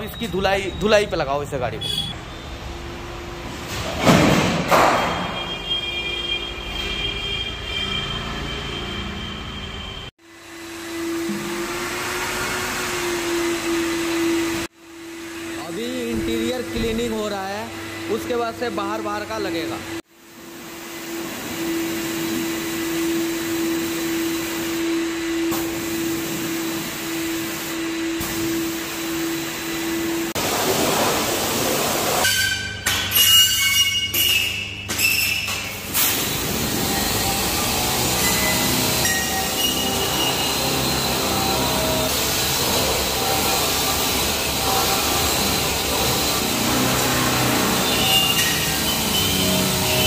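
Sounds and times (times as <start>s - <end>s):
pressure washer motor hum: 10.4s - 32.2s, 35.8s - 50.0s
water spray hissing: 30.3s - 32.2s.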